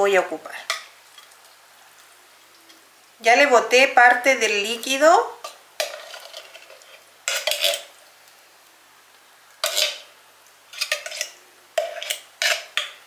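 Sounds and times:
fork scraping and clinking in tin can: 0:05.8 - 0:07.9, 0:09.6 - 0:10.0, 0:10.7 - 0:13.0.

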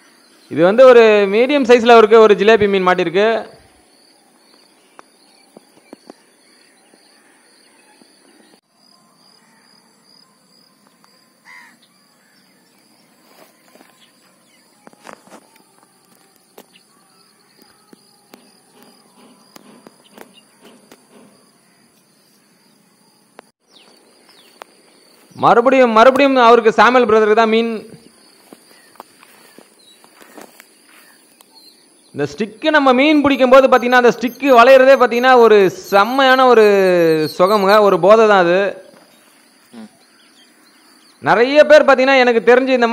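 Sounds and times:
insects chirring: 0:00.0 - 0:42.9
bird call: 0:32.6 - 0:41.3.

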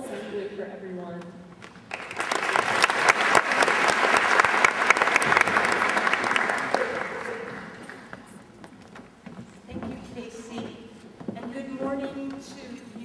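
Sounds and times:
audience applauding: 0:01.9 - 0:08.2.

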